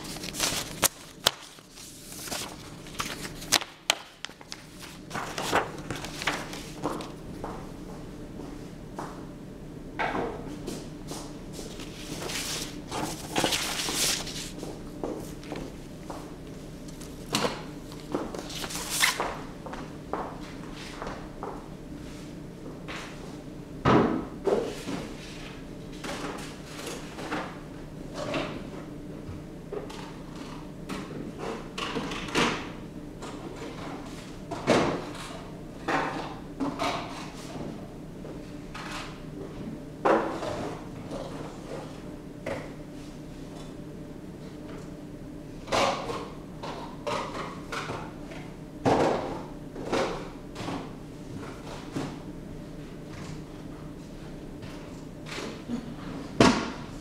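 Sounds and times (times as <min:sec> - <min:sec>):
low steady hum: 0:00.0 - 0:24.4.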